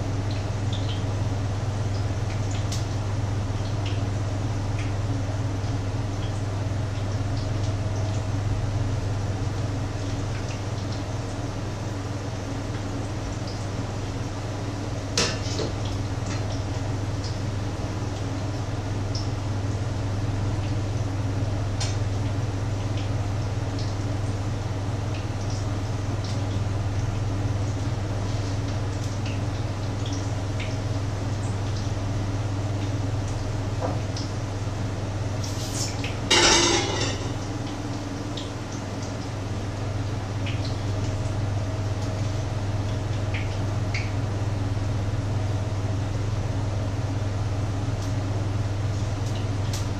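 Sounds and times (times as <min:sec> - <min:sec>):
pans and utensils clinking: 0:36.3 - 0:37.4.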